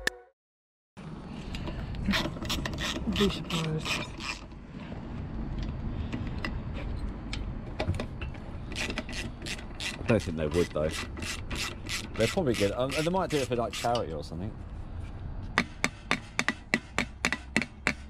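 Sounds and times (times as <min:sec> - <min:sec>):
metal-on-metal rubbing: 0:02.1 - 0:04.6, 0:08.6 - 0:14.1
socket ratchet clicking: 0:10.9 - 0:13.1.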